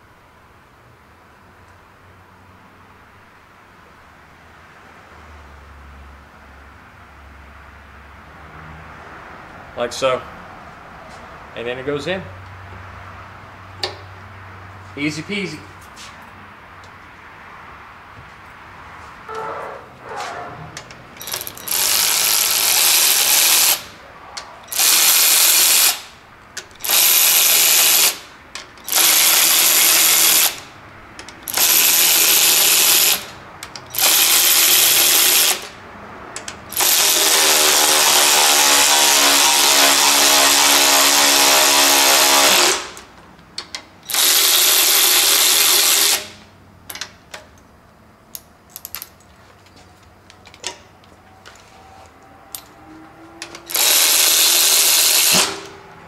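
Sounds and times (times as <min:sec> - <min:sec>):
electric ratchet running: 0:21.2 - 0:23.9, 0:24.6 - 0:26.1, 0:26.7 - 0:30.7, 0:31.4 - 0:35.8, 0:36.4 - 0:43.1, 0:44.0 - 0:46.4, 0:53.7 - 0:55.7.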